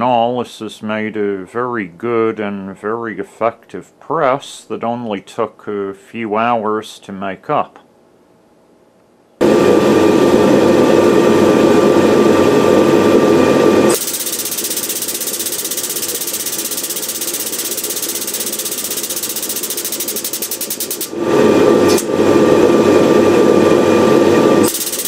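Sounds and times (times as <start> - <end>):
air pump buzzing and pulsing: 9.4 - 25.0.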